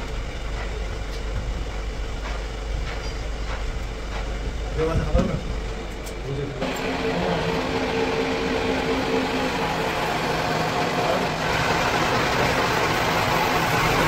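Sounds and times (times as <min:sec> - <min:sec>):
cutting tool hissing: 0:06.6 - 0:14.0
lathe humming: 0:06.6 - 0:14.0.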